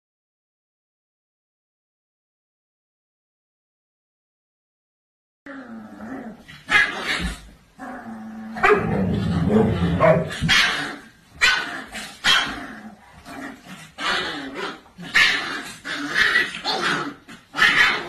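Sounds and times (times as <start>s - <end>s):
dog barking: 8.6s - 12.6s, 17.6s - 18.0s.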